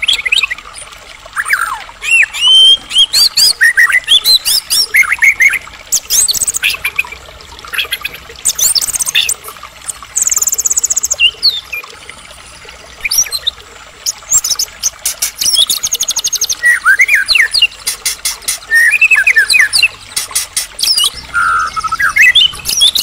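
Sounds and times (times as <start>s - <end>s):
songbird singing: 13.0s - 23.0s
bird's sharp clicking chips: 17.9s - 18.9s, 20.1s - 21.0s.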